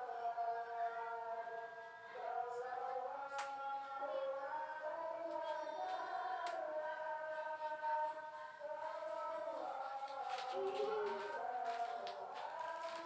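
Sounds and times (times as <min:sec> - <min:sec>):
high voice singing sliding notes: 0:03.3 - 0:13.0.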